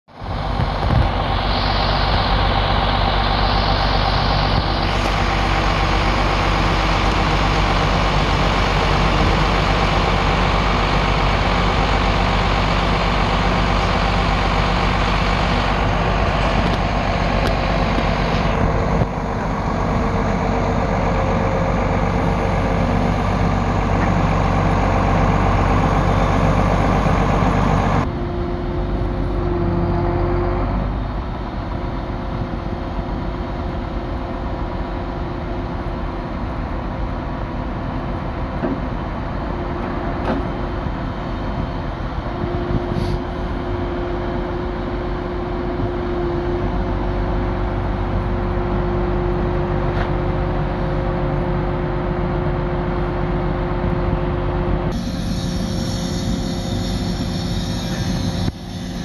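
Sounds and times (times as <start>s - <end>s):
truck diesel engine running: 0.1s - 59.0s.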